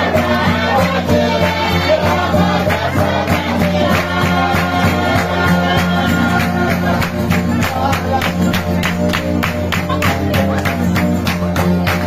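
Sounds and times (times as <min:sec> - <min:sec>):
group singing: 0:00.0 - 0:09.0
strummed string instruments: 0:00.0 - 0:12.0.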